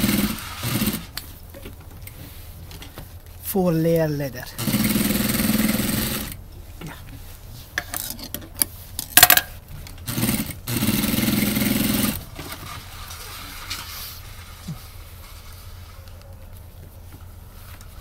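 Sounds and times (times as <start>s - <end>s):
sewing machine stitching leather: 0.0s - 1.2s, 4.6s - 6.4s, 10.1s - 12.5s.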